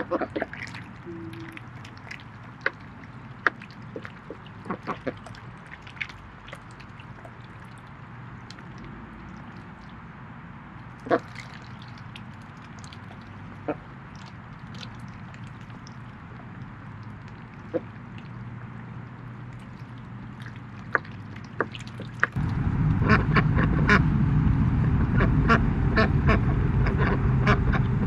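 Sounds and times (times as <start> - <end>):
ducks quacking: 0.0 - 1.8, 3.4 - 5.4, 11.0 - 11.3, 25.2 - 27.9
steady low rumble: 0.0 - 28.0.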